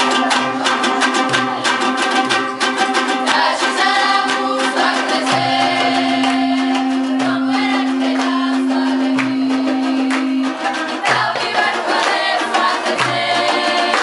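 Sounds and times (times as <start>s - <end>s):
girls singing folk song in parts: 0.0s - 14.0s
strummed lutes: 0.0s - 14.0s
low drone voice: 5.2s - 11.1s.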